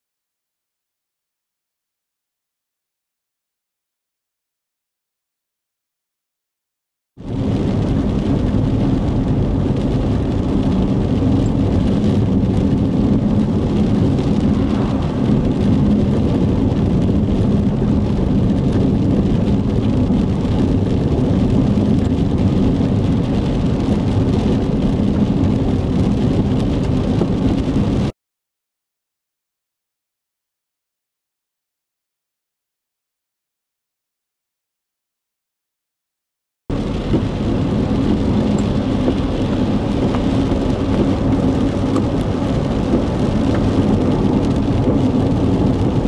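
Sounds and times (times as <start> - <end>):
loud even noise: 7.2 - 28.1, 36.7 - 46.0
vehicle cab road and engine noise: 7.2 - 28.1, 36.7 - 46.0.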